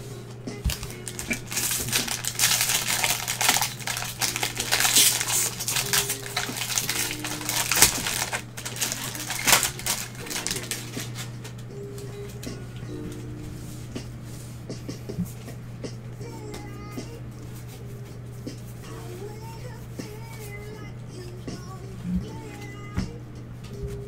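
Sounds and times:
wrapper tearing open: 0.7 - 11.3
plastic wrapper crinkling: 0.7 - 11.6.

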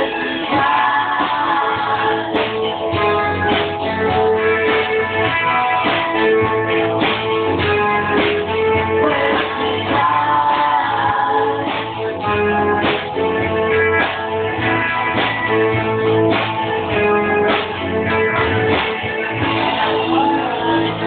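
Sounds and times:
drums keeping a steady beat: 0.0 - 21.0
electric guitar: 0.0 - 21.0
keyboard: 0.0 - 21.0.

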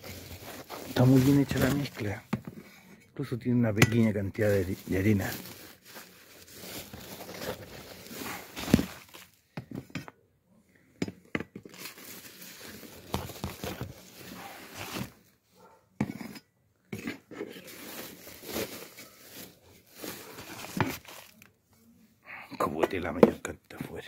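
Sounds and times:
plastic sack crinkling: 0.0 - 2.3, 3.9 - 9.4, 11.6 - 15.2, 17.5 - 21.5.

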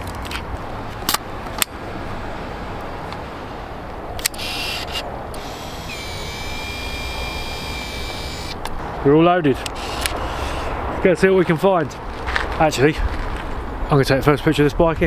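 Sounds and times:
sharp plastic clicks: 4.2 - 5.5
film-advance motor whirring: 4.2 - 8.6.

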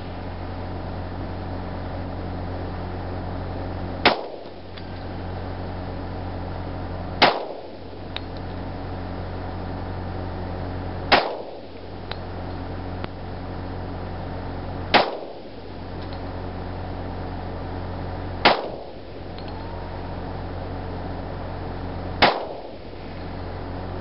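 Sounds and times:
pistol shots: 4.0 - 4.5, 7.2 - 7.8, 11.1 - 11.7, 14.9 - 15.5, 18.4 - 19.0, 22.2 - 22.8.

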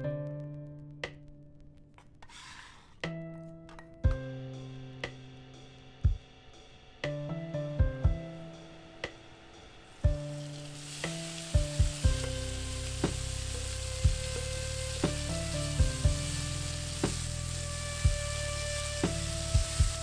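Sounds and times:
meat sizzling in hot oil: 10.0 - 20.0.

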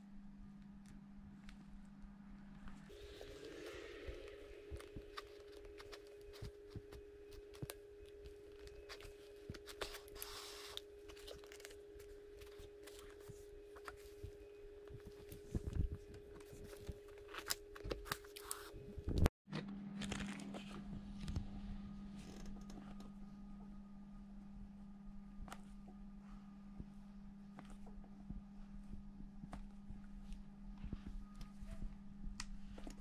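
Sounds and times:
steady hum: 0.0 - 19.3
lower hum: 0.0 - 33.0
scrapes and rustles of material: 1.4 - 19.3.

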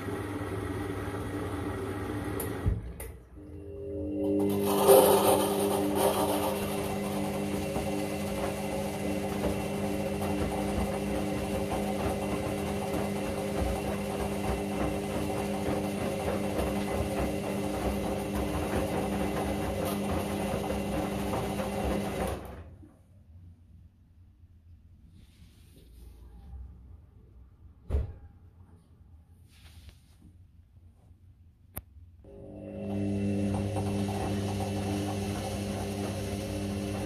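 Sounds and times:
washing machine drum motor humming: 0.0 - 22.7, 32.3 - 37.0.

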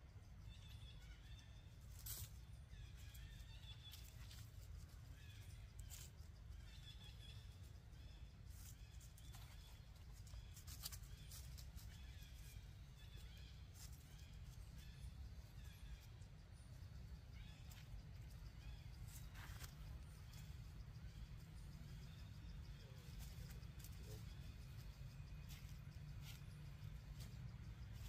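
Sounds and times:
rustles: 1.8 - 6.5, 8.4 - 15.0, 17.4 - 20.5, 22.7 - 28.0.

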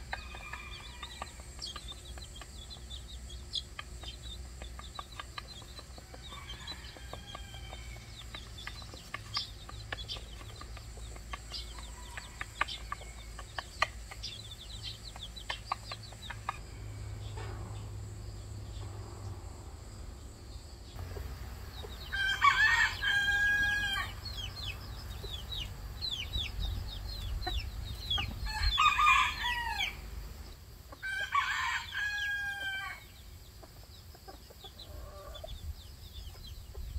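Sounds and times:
chicks peeping: 0.0 - 19.0, 20.8 - 36.9
rooster crowing: 6.2 - 8.0, 22.0 - 24.4, 28.4 - 30.1, 31.0 - 33.1
hen clucking softly: 33.6 - 35.6.

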